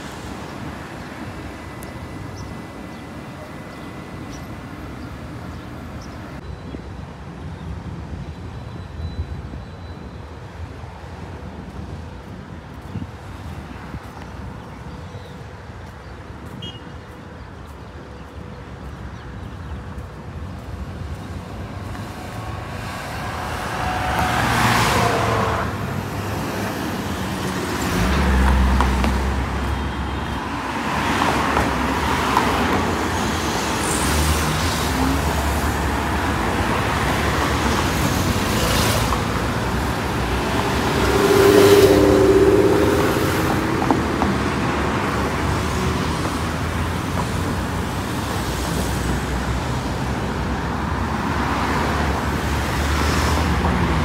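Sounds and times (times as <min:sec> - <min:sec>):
steady traffic hum: 0:00.0 - 0:54.0
cars driving past: 0:19.4 - 0:54.0.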